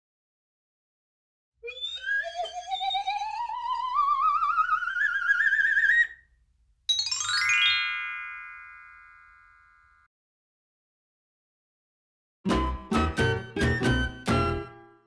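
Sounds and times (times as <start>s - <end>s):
warbling whistle tone gliding upward: 1.6s - 6.1s.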